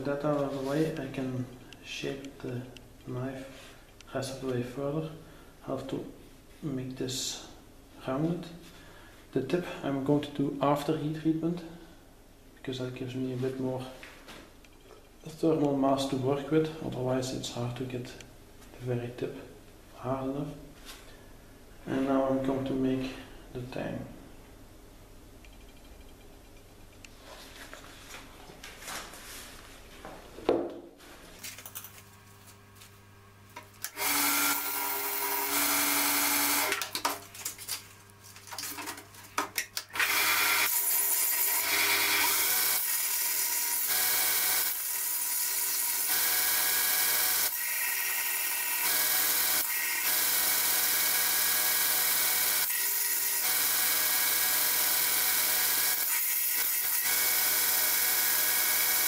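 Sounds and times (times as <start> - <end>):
belt grinder grinding steel: 33.9 - 36.8, 40.0 - 59.0.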